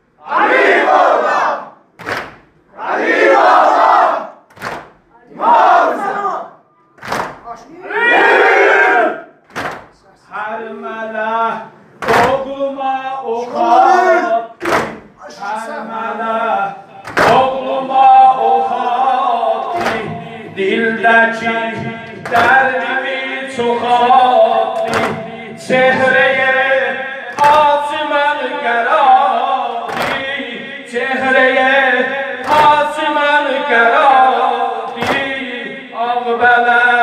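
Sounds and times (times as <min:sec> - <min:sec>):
unison chest-beating slaps: 0:02.0 - 0:02.6, 0:04.5 - 0:05.0, 0:07.0 - 0:07.5, 0:09.4 - 0:10.0, 0:12.0 - 0:12.5, 0:14.6 - 0:15.1, 0:17.0 - 0:17.5, 0:19.7 - 0:20.2, 0:22.2 - 0:22.6, 0:24.8 - 0:25.2, 0:27.3 - 0:27.7, 0:29.9 - 0:30.3, 0:32.4 - 0:32.8, 0:34.9 - 0:35.4
men singing lament in chorus: 0:10.3 - 0:14.6, 0:15.4 - 0:37.0.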